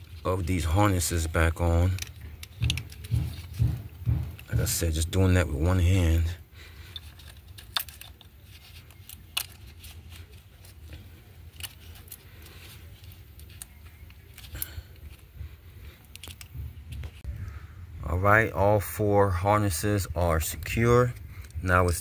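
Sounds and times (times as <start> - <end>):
handling rustle: 0.0 - 17.3
low steady hum: 0.0 - 22.0
plastic connectors clicking: 1.4 - 4.5, 6.8 - 15.2, 15.9 - 17.0.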